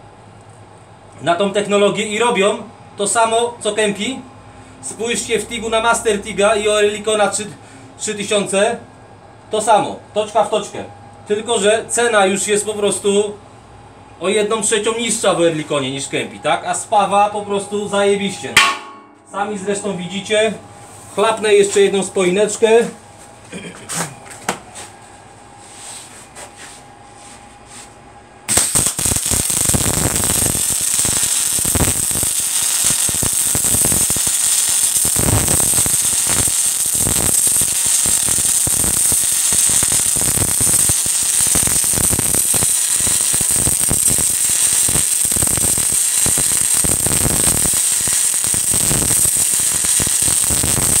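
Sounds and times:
welding arc crackling hiss: 28.5 - 51.0.

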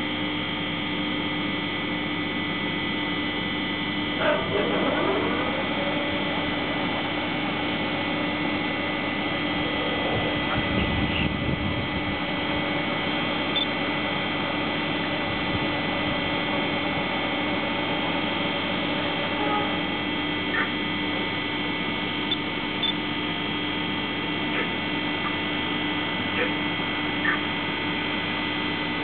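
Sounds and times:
electrical hum with whining tones: 0.0 - 29.0.

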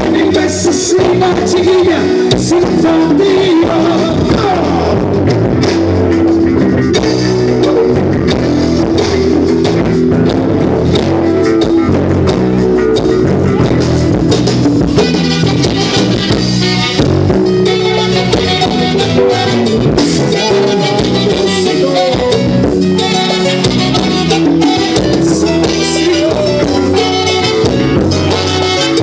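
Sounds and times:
person singing: 0.0 - 5.2, 18.0 - 28.9
electric guitar: 0.0 - 29.0
live band playing: 0.0 - 29.0
saxophones: 0.0 - 29.0
drum beat: 1.0 - 28.6.

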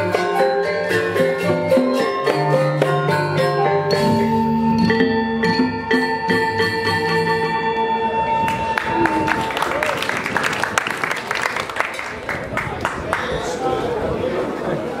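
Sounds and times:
hand drums: 0.0 - 7.2
gongs and metallophones ringing: 0.0 - 8.8.

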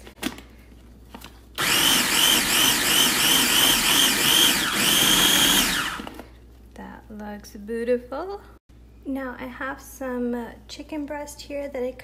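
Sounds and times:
food processor whirring: 1.6 - 6.3.

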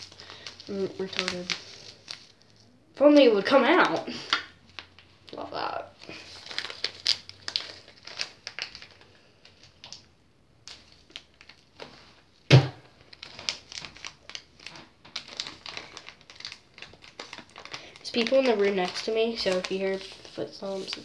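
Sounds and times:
plastic packet crinkling: 0.0 - 21.0
loud thump: 12.5 - 12.8.

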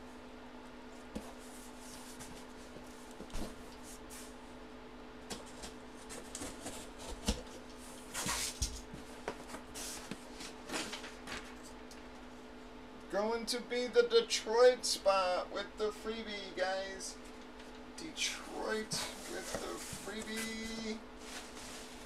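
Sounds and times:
steady low hum: 0.0 - 22.0
cardboard and paper rustling: 18.9 - 22.0.

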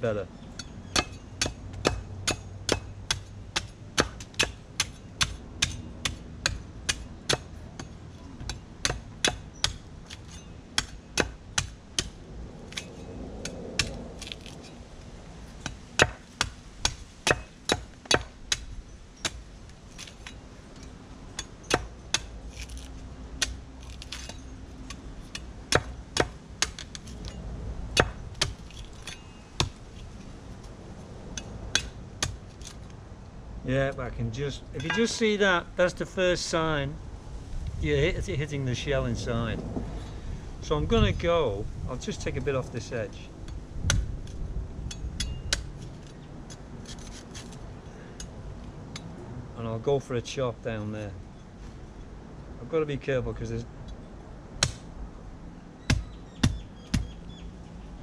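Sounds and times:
knife chopping coconut husk: 21.6 - 27.0.

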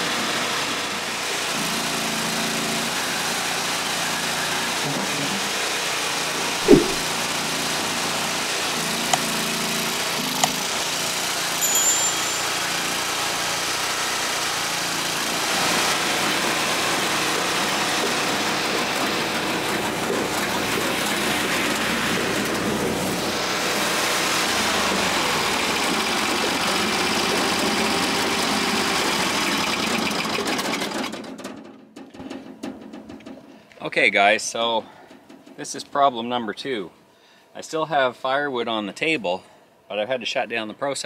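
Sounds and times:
firewood processor engine running: 0.0 - 6.4, 7.3 - 11.6, 12.3 - 31.5.

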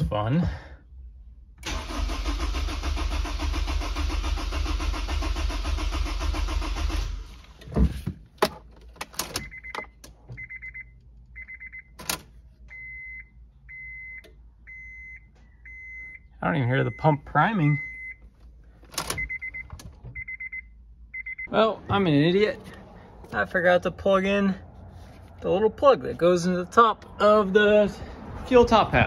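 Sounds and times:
engine cranking on starter: 1.6 - 7.6
car warning chime beeping: 9.4 - 18.3, 19.0 - 21.8.

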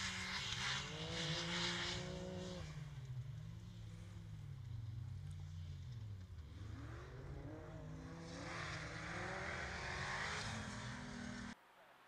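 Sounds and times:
racing car engine revving: 0.0 - 2.8, 6.5 - 11.6.

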